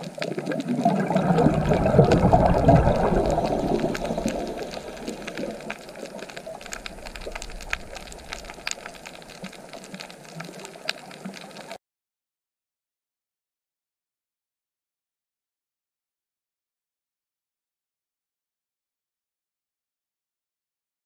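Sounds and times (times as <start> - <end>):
sharp underwater clicks: 0.0 - 11.8
underwater bubbling rush: 0.0 - 11.8
underwater hiss: 0.3 - 11.8.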